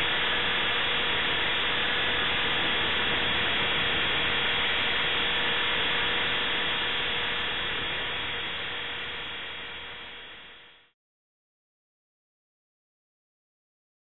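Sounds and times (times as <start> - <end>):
electric motor and gears whining: 0.0 - 10.8.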